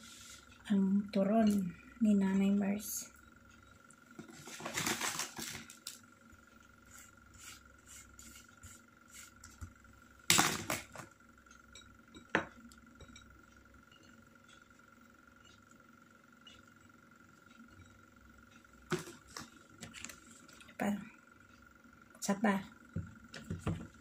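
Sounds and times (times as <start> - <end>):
wrapper and paper rustling: 4.3 - 5.9.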